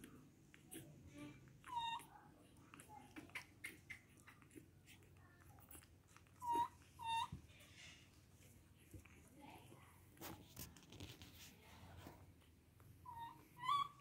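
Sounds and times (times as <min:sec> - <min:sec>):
baby monkey squeaking: 0:06.4 - 0:07.3, 0:13.0 - 0:14.0.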